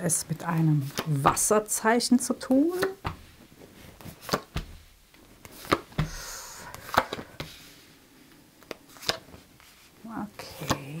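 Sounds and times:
card sliding rustle: 2.8 - 4.8, 5.4 - 7.9, 8.6 - 10.8
cards tapping on a table: 5.4 - 7.5.

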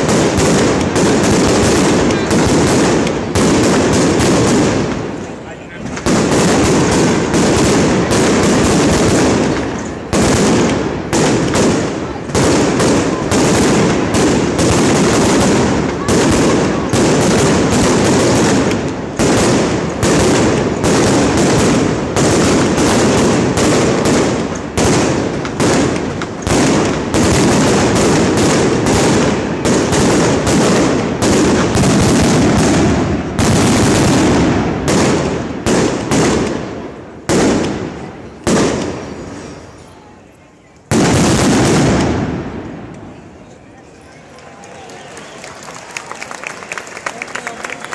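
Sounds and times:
fireworks bangs and crackling: 0.0 - 47.9.

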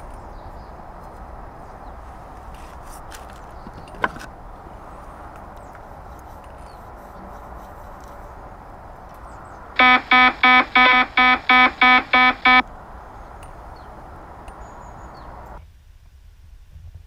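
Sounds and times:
background hiss: 5.9 - 15.6
short electronic beeps: 9.8 - 12.6.

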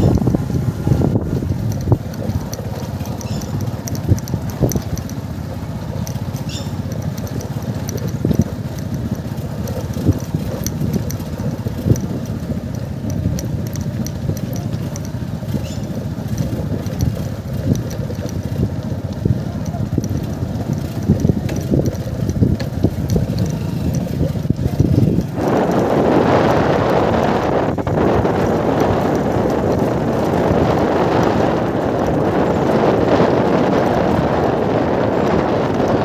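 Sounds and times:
knocks and rattles from bumps: 0.0 - 36.0
motorcycle engine at low speed: 0.0 - 36.0.

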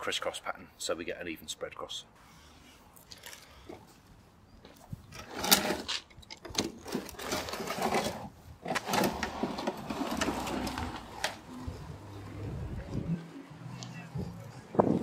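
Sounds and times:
lawn spreader rattling: 6.6 - 11.5.

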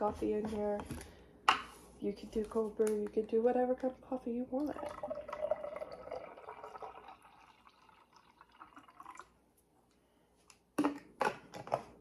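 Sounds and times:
liquid pouring into a glass: 4.6 - 9.4.

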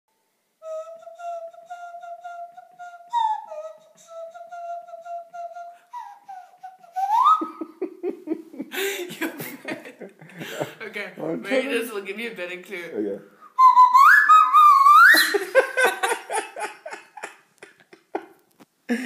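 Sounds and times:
person humming a tune: 0.6 - 7.7
laughter: 7.4 - 10.8, 15.1 - 19.0.

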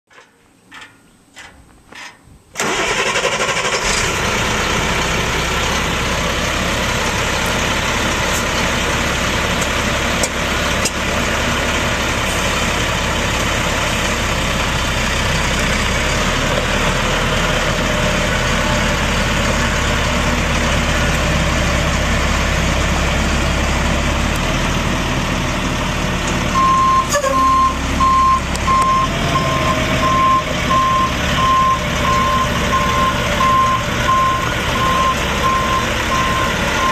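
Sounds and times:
diesel engine starting and idling: 2.5 - 36.9
reversing alarm beeps: 26.6 - 36.9.

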